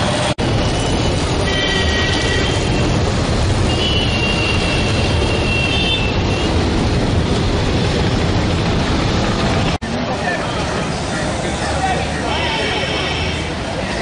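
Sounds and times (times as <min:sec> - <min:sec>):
loud vehicle noise: 0:00.0 - 0:14.0.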